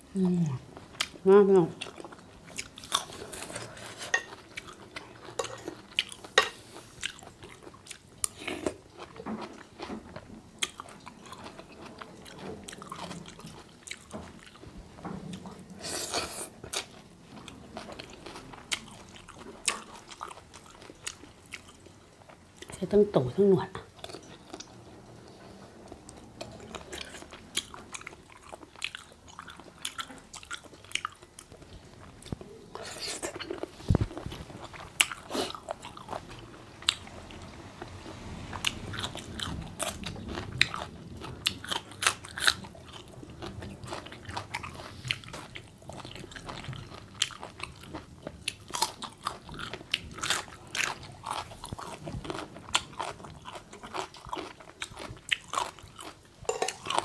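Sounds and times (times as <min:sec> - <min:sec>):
crunchy biting and wet chewing: 0:38.6 - 0:57.0.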